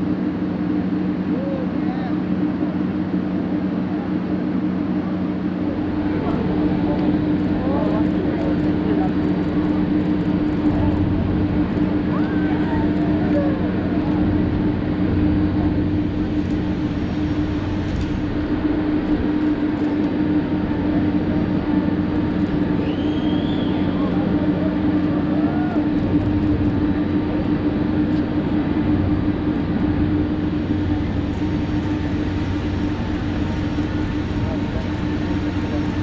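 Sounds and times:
mechanical drone: 0.0 - 36.0
faint voices: 0.6 - 36.0.

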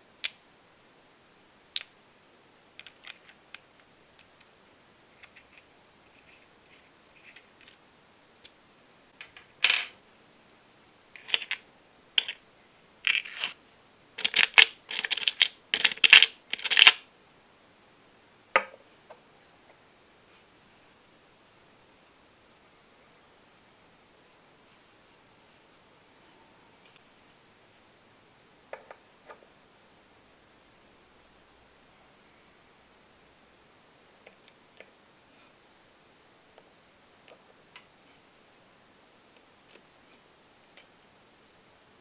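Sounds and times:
small metal parts clinking: 11.2 - 11.6, 12.2 - 12.4, 14.2 - 17.0.

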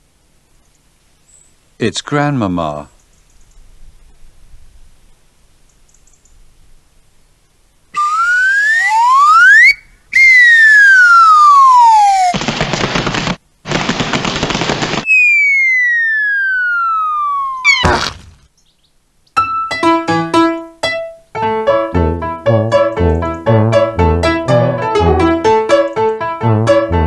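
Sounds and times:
cartoon whistle glides: 8.0 - 12.3, 15.1 - 18.0.

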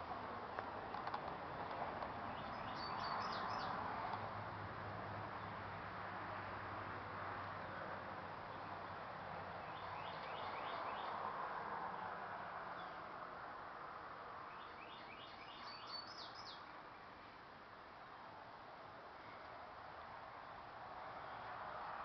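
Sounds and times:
outdoor background hiss: 0.0 - 22.0
songbird singing: 0.9 - 4.2, 8.4 - 13.2, 14.3 - 18.2.

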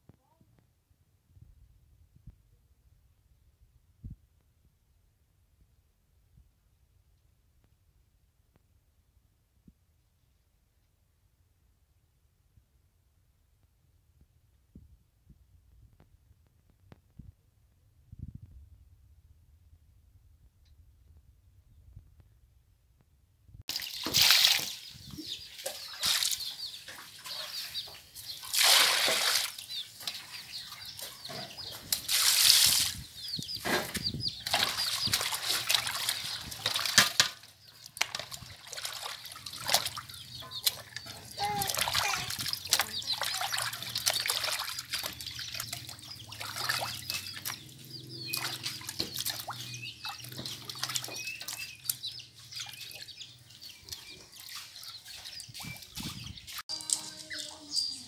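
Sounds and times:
hands splashing in water basin: 23.7 - 31.1, 31.7 - 33.2, 33.8 - 53.1.

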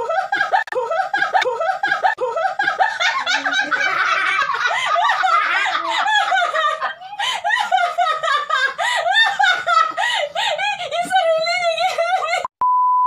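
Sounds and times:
women laughing: 0.0 - 12.5.

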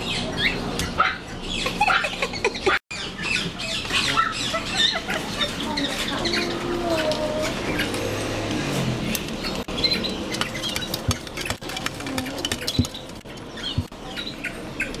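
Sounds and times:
dog claws scratching glass: 9.9 - 13.9.

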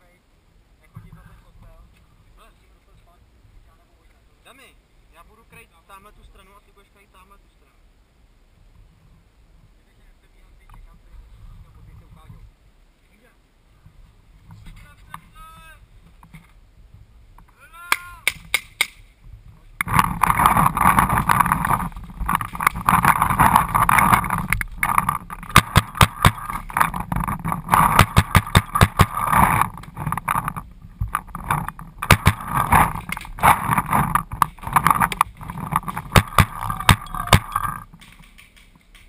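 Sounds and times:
steady rushing noise: 18.1 - 39.0
paintball marker firing: 25.5 - 26.5, 27.9 - 29.2, 32.0 - 33.2, 35.8 - 37.6.

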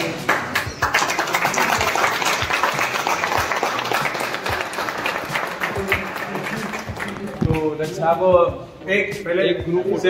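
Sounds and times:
crowd clapping: 0.0 - 7.7.

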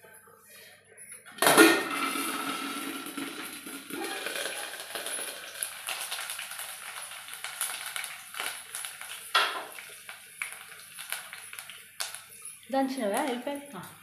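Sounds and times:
chillies sizzling in hot oil: 1.5 - 14.0
crackles and pops: 1.9 - 13.6.

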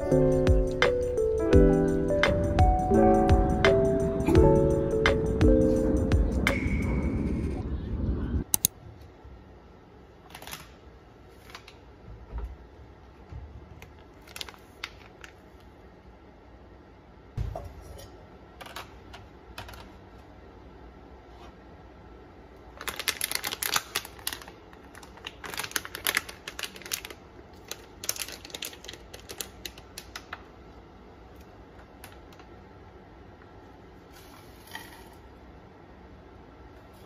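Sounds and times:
plastic bag crinkling: 13.9 - 15.6, 22.7 - 30.4.

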